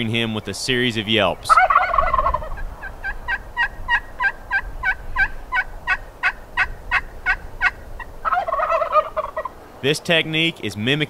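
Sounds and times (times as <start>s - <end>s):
turkey call yelps: 1.5s - 9.6s
turkey gobbling: 1.5s - 9.6s.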